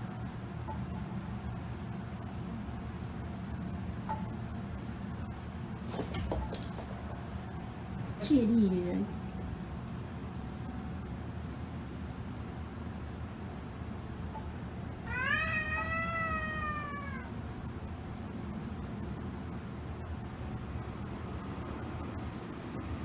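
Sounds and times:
cat yowling: 15.0 - 17.4.

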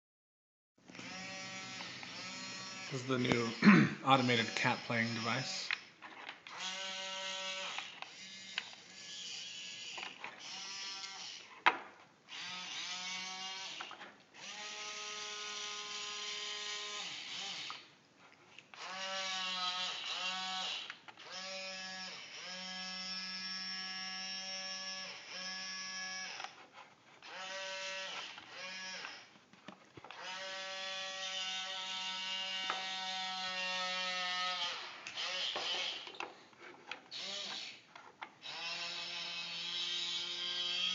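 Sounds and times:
robot arm motors whining: 6.5 - 11.5, 12.3 - 17.9, 30.2 - 36.2, 37.1 - 37.8.

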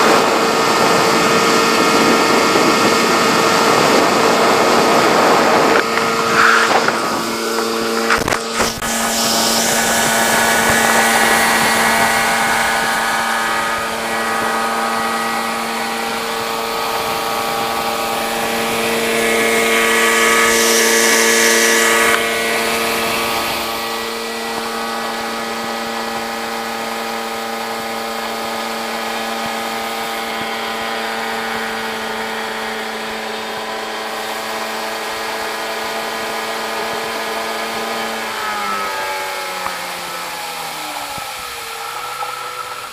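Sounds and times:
water rushing past hull: 0.0 - 32.7
outboard motor running: 0.0 - 42.9.

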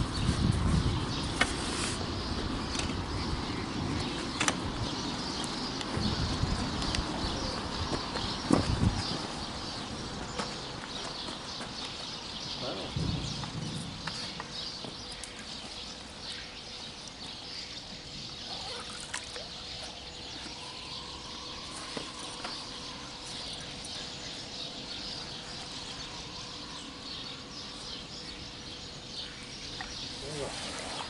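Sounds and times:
river water trickling and sloshing: 15.0 - 26.6, 29.6 - 31.0.

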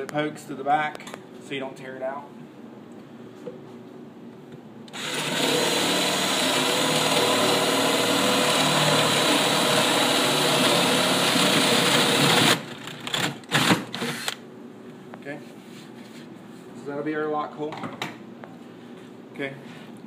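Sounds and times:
power drill boring wood: 4.9 - 14.4.

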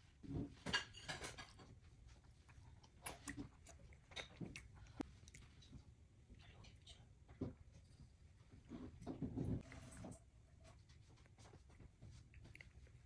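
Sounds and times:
toddler chewing food: 1.6 - 7.0, 9.6 - 13.0.

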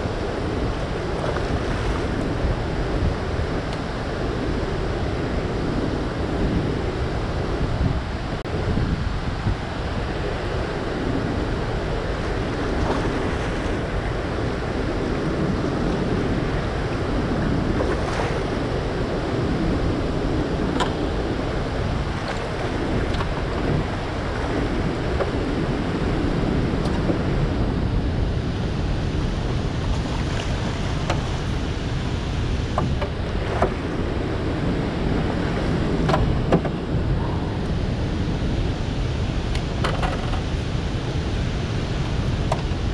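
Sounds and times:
wind buffeting microphone: 0.0 - 42.9
floodwater rushing: 8.4 - 39.8.

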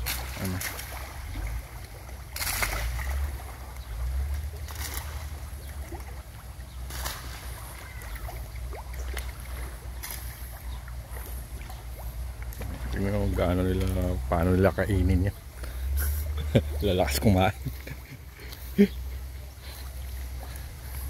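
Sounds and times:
fish splashing at water surface: 0.0 - 14.2.

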